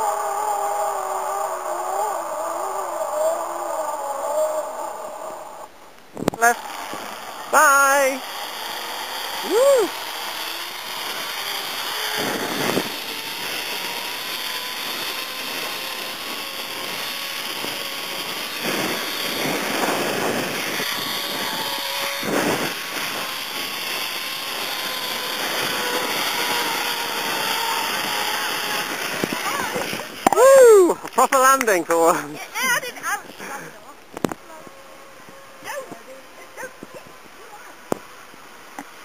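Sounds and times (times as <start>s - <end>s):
pulley wheels whirring on cable: 0.0s - 38.2s
wind on microphone: 12.1s - 14.0s, 14.9s - 31.2s.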